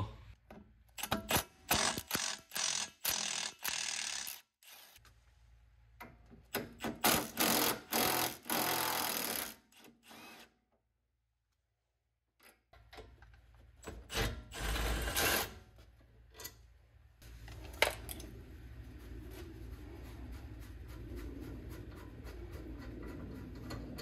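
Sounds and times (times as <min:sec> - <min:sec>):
steady low hum: 0:16.9 - 0:24.0.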